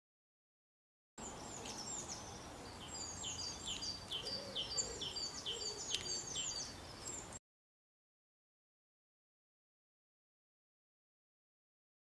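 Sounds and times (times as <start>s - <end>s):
faint outdoor hiss: 1.2s - 7.4s
songbirds chirping: 1.2s - 7.4s.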